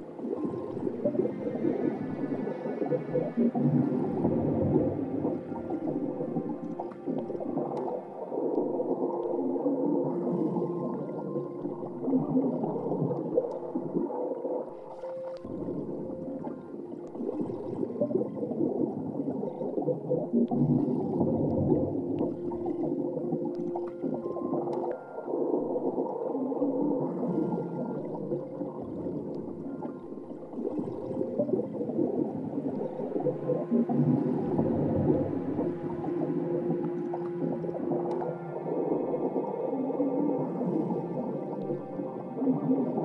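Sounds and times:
underwater-like gurgling textures: 0.0s - 43.0s
whale-like electronic calls: 0.0s - 43.0s
long held electronic tones: 27.0s - 43.0s.

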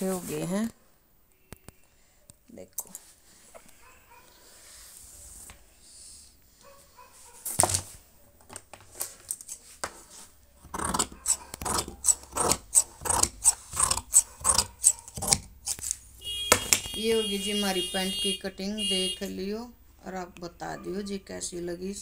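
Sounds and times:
scissors snipping cloth: 10.8s - 16.0s.

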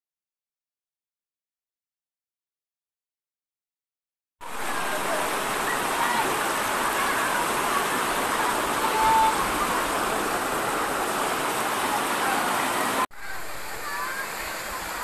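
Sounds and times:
faint children's voices: 4.4s - 15.0s
stream water rushing over rocks: 4.4s - 15.0s.

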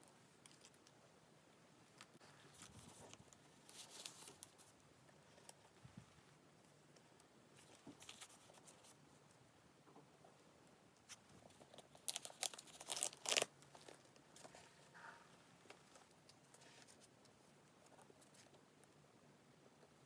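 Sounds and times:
wrapping sheet crinkling and rustling: 2.0s - 5.8s, 7.6s - 9.0s, 11.1s - 15.0s.

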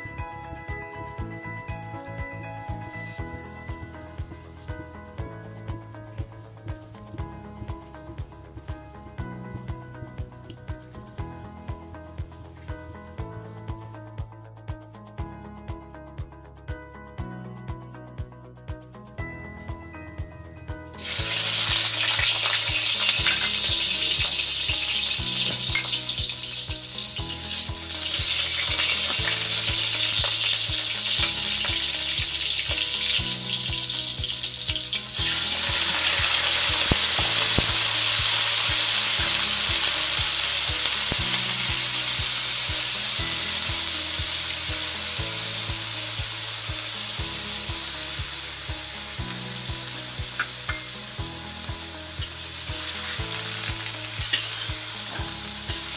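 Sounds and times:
oil sizzling in a wok: 21.0s - 55.9s.

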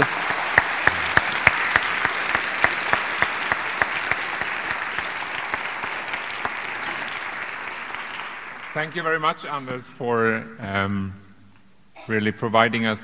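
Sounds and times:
audience applauding: 0.0s - 9.6s.

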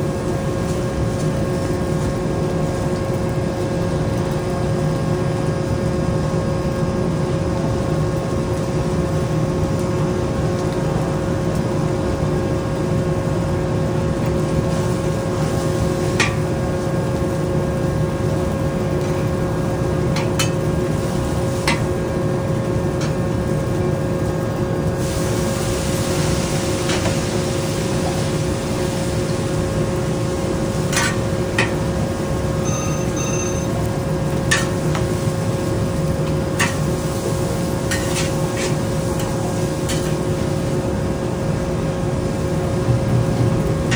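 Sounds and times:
fan hum: 0.0s - 43.9s
noodles frying in a wok: 0.0s - 43.9s
wok burner roaring: 0.0s - 43.9s
sizzling hiss: 24.9s - 41.0s.

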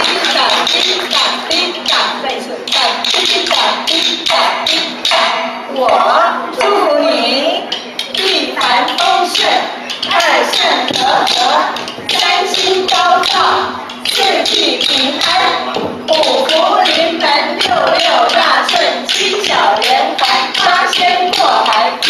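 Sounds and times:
woman singing into a microphone: 8.2s - 22.0s.

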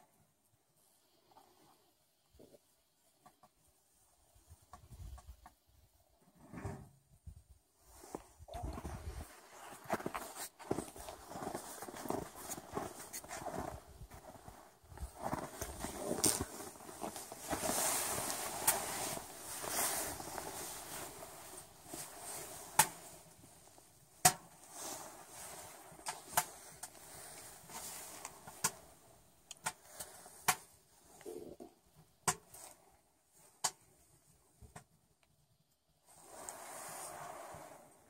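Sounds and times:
boughs rustling and crunching: 8.1s - 29.0s
sharp pops and clicks: 29.5s - 29.8s, 32.2s - 32.6s.

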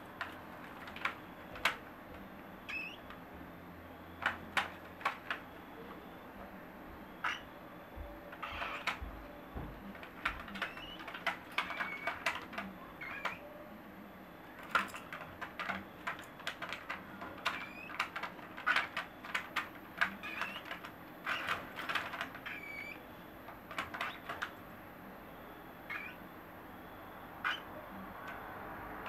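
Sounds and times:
beaks and feet clicking on cage: 2.6s - 3.2s, 7.2s - 7.5s, 8.3s - 9.2s, 9.9s - 13.4s, 14.6s - 24.6s, 25.9s - 26.2s, 27.4s - 29.0s
baby birds chirping softly: 10.5s - 12.2s, 25.9s - 26.2s, 27.4s - 27.8s.

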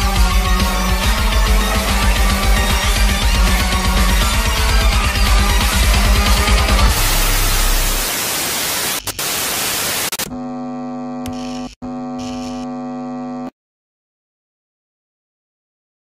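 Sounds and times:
steady electrical buzz: 6.9s - 13.5s
television static hiss: 7.1s - 10.2s.

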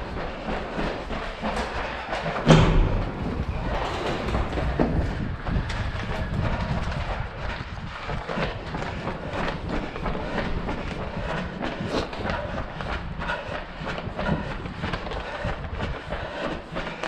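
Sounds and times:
running footsteps on hard floor: 0.0s - 17.0s
door thump: 2.4s - 5.0s.

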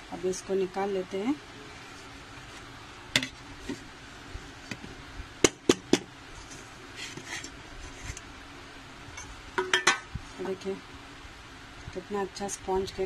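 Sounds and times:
metal tin knocking against plate: 9.6s - 10.0s.

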